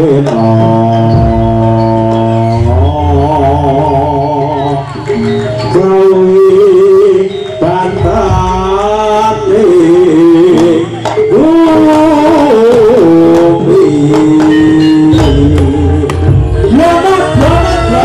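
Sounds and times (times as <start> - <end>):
drums: 10.3 - 18.0.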